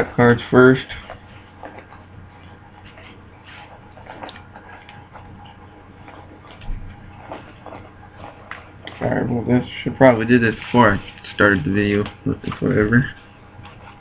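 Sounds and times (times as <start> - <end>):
trading cards clicking and rustling: 10.5 - 14.0.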